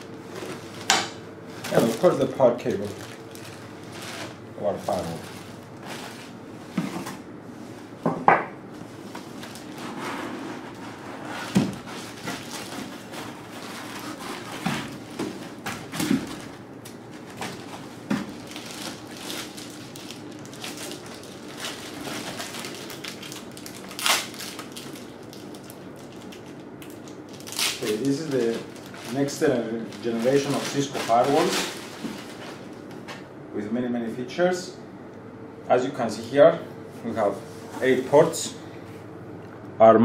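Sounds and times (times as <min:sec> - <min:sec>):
plastic crinkling: 0:01.5 - 0:06.4, 0:09.1 - 0:32.9.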